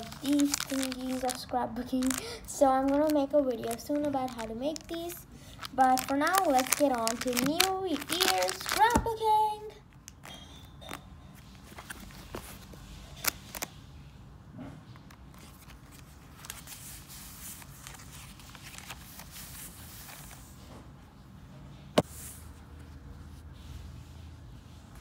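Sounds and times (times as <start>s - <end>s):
paper rustling: 0.0s - 9.4s, 10.8s - 13.8s, 15.2s - 20.6s.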